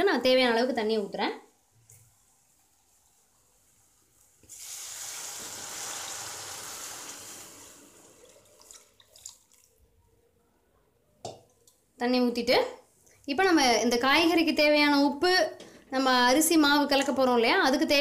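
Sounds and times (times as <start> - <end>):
water pouring into a pan: 2.2 - 9.8.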